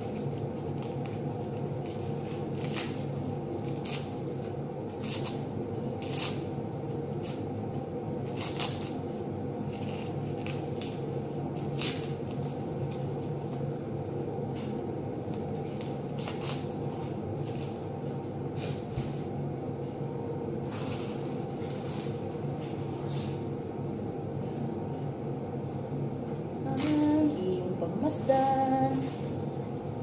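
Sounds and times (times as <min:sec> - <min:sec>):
onion skins crackling and rustling: 0:00.0 - 0:13.8, 0:15.2 - 0:19.3, 0:20.6 - 0:23.4, 0:28.2 - 0:30.0
steady low hum: 0:00.0 - 0:30.0.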